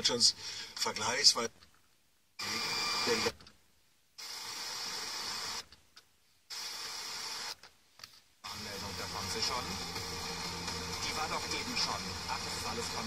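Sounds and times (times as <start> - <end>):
radio static hiss: 2.4 - 3.4, 4.2 - 5.7, 6.5 - 7.7, 8.4 - 13.0.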